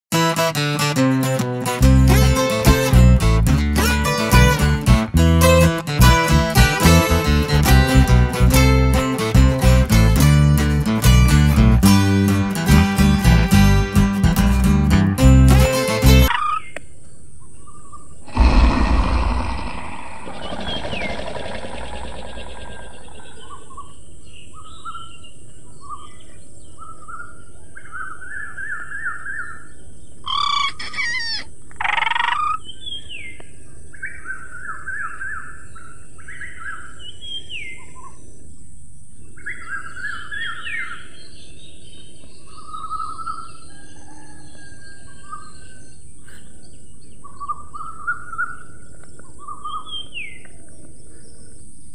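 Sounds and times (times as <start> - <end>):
birds chirping and trilling: 16.3 - 51.9
harsh bird calls: 17.6 - 25.2, 27.9 - 33.3
deep rumbling burst: 18.3 - 23.3.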